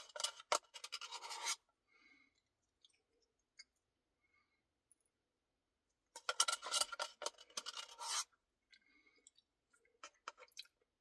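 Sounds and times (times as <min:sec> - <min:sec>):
plastic spoon scraping paper cup: 0:00.0 - 0:01.7, 0:06.2 - 0:08.4.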